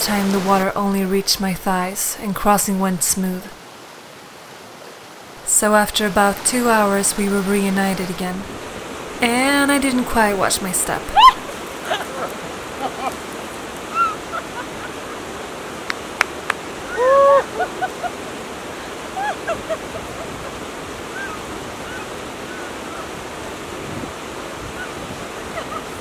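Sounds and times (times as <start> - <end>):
stream rushing over rocks: 0.0 - 26.0
person calling: 10.9 - 12.1, 16.9 - 18.0.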